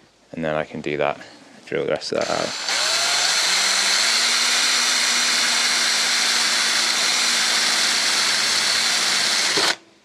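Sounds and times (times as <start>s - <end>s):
power drill boring metal: 2.2s - 9.8s.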